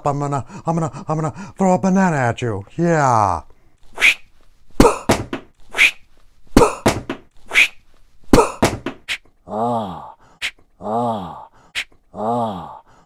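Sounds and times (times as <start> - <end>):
puppet voice groaning: 9.4 - 10.2, 10.8 - 13.0.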